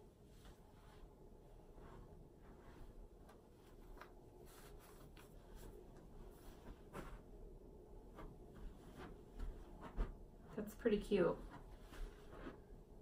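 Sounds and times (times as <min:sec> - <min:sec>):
clothing fabric rustling: 0:00.0 - 0:13.0.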